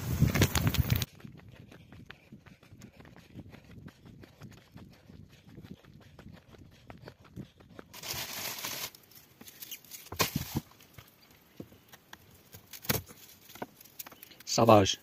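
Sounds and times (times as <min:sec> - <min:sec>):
footsteps on dirt trail: 0:00.0 - 0:14.7
rustle: 0:07.9 - 0:14.9.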